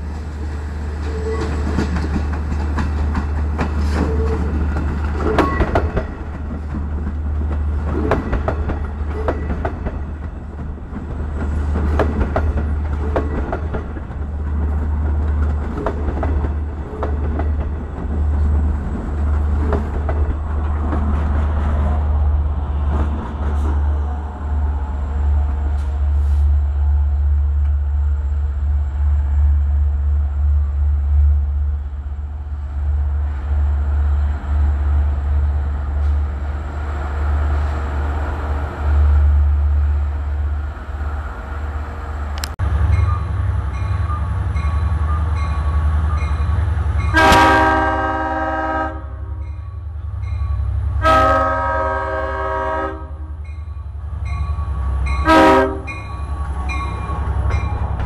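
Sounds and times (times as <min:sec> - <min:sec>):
diesel train rumble: 0:00.0 - 0:58.0
crossing bell dinging: 0:42.9 - 0:47.3, 0:49.3 - 0:51.0, 0:53.3 - 0:58.0
train horn blasts: 0:46.6 - 0:49.9, 0:50.6 - 0:53.4, 0:54.8 - 0:56.8.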